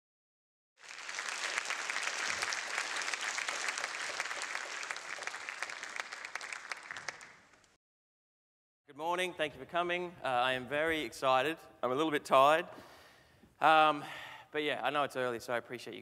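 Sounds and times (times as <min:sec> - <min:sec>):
audience applauding: 0:00.8 - 0:07.8.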